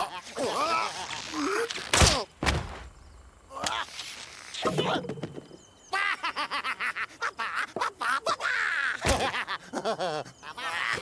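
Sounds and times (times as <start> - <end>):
cartoon creatures giggling: 0.0 - 1.5, 5.8 - 11.0.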